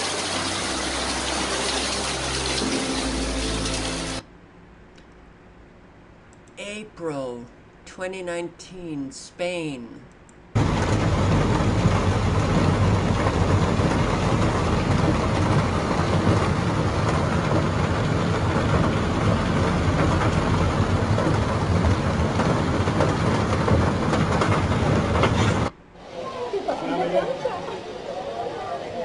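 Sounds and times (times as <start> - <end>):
floodwater rushing along street: 0.0 - 4.2, 10.6 - 29.0.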